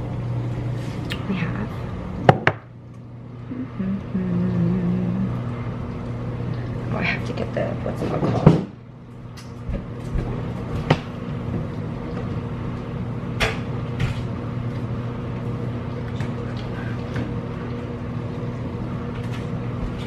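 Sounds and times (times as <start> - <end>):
dishwasher humming: 0.0 - 20.0.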